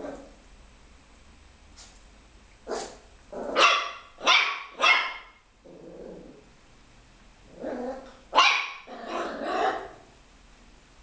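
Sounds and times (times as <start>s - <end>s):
puppy yapping: 2.7s - 5.4s, 7.9s - 10.0s.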